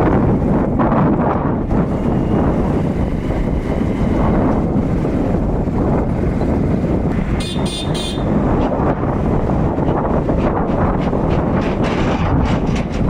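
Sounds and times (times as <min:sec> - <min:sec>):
wind buffeting microphone: 0:00.0 - 0:13.0
high-pitched horn toots: 0:07.4 - 0:08.4.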